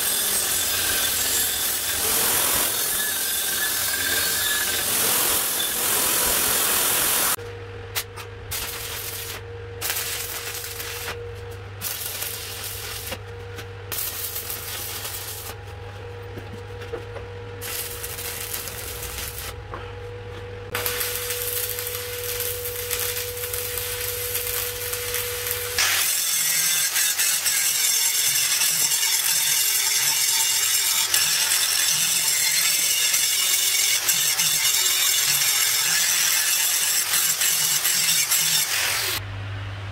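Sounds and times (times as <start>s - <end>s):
angle grinder grinding steel: 0.0s - 7.4s, 20.8s - 39.2s
crackling welding arc bursts: 0.0s - 7.4s, 8.5s - 11.2s, 11.8s - 13.2s, 13.9s - 15.6s, 17.6s - 19.6s, 20.7s - 39.2s
steady electrical hum: 7.3s - 26.1s.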